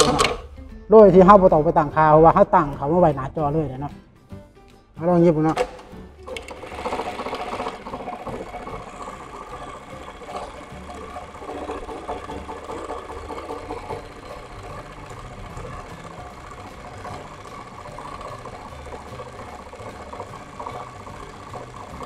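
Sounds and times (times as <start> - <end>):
sewing machine stitching: 0.0 - 0.5, 5.5 - 22.0.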